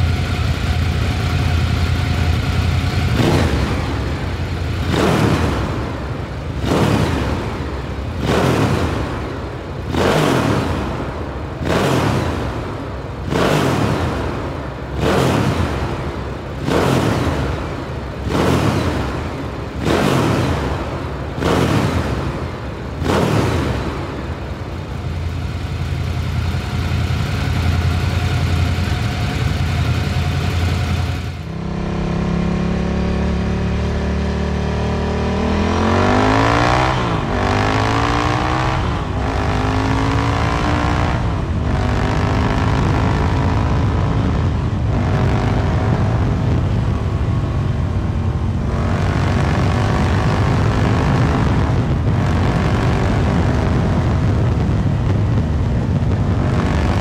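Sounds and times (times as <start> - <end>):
motorcycle engine idling: 0.0 - 5.0, 24.0 - 33.6
motorcycle accelerating through upshifts: 0.0 - 57.0.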